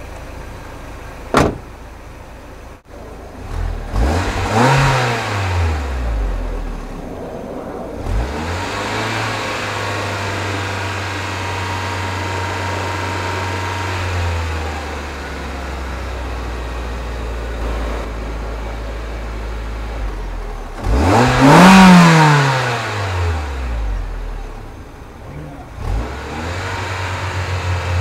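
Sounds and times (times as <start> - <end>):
car exhaust engine revving: 2.8 - 28.0.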